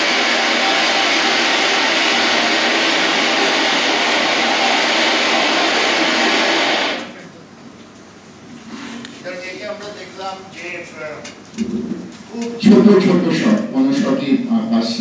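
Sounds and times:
rushing noise over speakers: 0:00.0 - 0:07.2.

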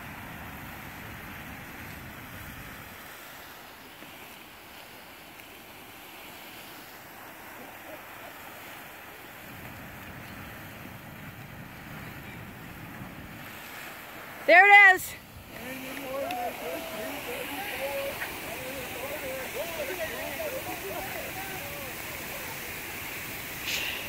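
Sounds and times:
geyser vents splashing and hissing: 0:00.0 - 0:24.0.

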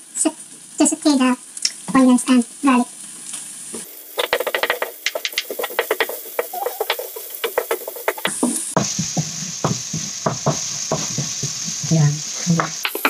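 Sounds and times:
chicken sizzling in frying pan: 0:00.0 - 0:13.0
spatula scraping and tapping pan: 0:04.2 - 0:13.0.

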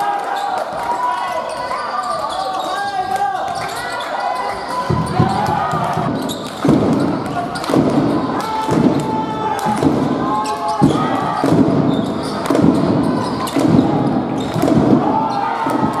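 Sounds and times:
voices shouting and chattering: 0:00.0 - 0:16.0
shoes squeaking: 0:01.5 - 0:08.2
basketball bouncing on court: 0:04.8 - 0:16.0.

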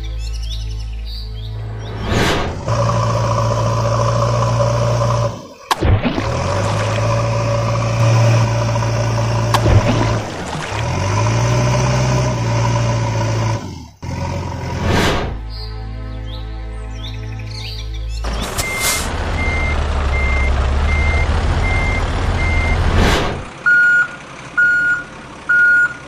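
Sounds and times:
heavy vehicle engine drone: 0:01.4 - 0:15.5, 0:18.2 - 0:26.0.

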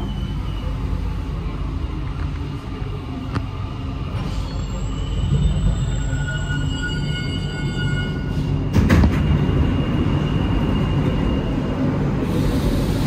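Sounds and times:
metro train rumble: 0:00.0 - 0:13.0
hiss: 0:12.2 - 0:13.0.

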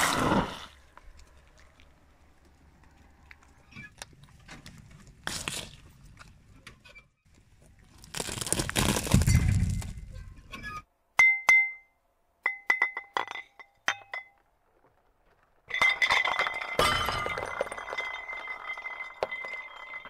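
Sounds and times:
corn cobs crunching under tyre: 0:00.0 - 0:06.4, 0:07.3 - 0:10.1
glass bottles clinking: 0:12.5 - 0:14.4, 0:15.7 - 0:20.0
glass bottles crushed: 0:15.7 - 0:20.0.

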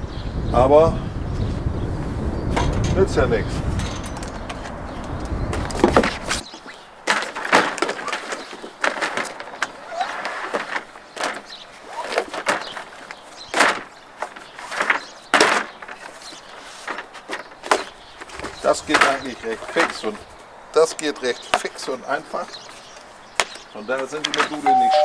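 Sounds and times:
solar panel handling clatter: 0:02.6 - 0:20.2, 0:23.4 - 0:24.7.

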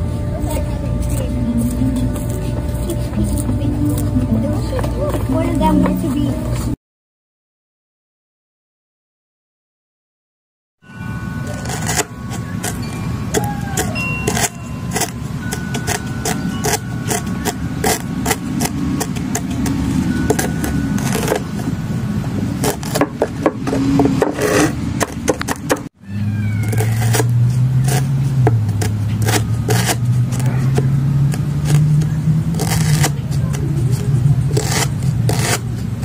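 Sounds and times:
low steady hum: 0:00.0 - 0:06.8, 0:10.8 - 0:25.5
egg clutch crushed and scraped: 0:11.6 - 0:21.7.

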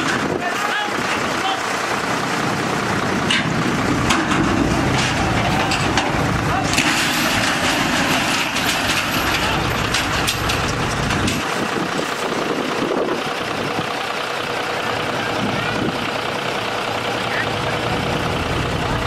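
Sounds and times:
diesel engine running: 0:00.0 - 0:19.0
steel truck body scraping asphalt: 0:03.1 - 0:13.0.

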